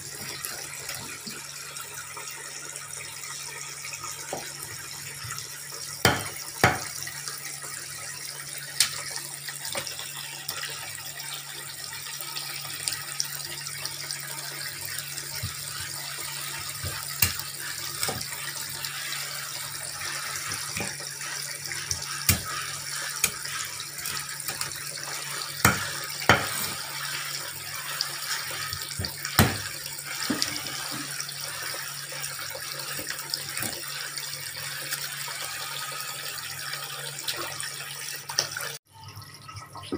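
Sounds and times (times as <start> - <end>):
cleaver chopping on cutting board: 6.0 - 6.9, 29.4 - 29.7.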